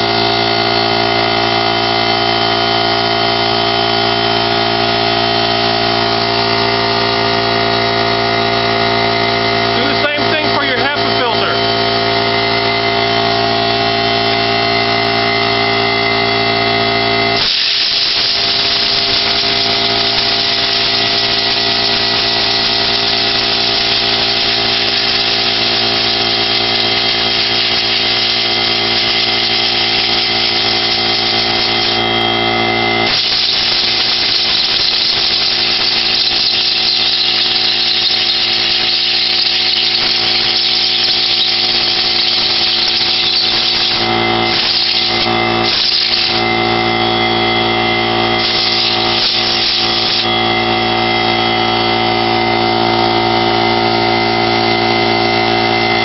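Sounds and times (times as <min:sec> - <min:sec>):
electric air compressor humming: 0:00.0 - 0:56.0
compressed air hissing from blow gun: 0:17.4 - 0:32.0, 0:33.1 - 0:46.4, 0:48.4 - 0:50.3.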